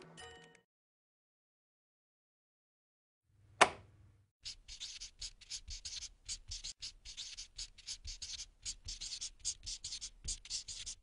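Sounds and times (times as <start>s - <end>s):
pen scratching on paper: 4.4s - 11.0s.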